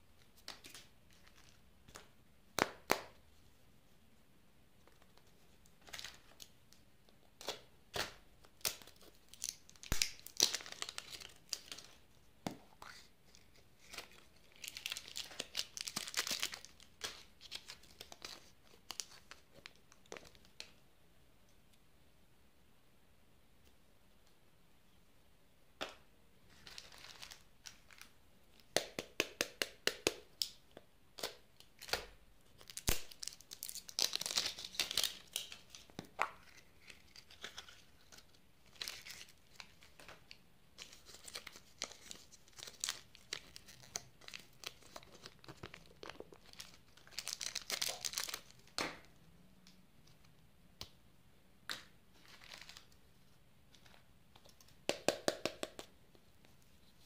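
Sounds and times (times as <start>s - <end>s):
plastic wrappers crinkling: 8.6s - 12.0s, 13.3s - 20.6s, 26.5s - 28.1s, 32.6s - 48.8s, 52.1s - 53.0s.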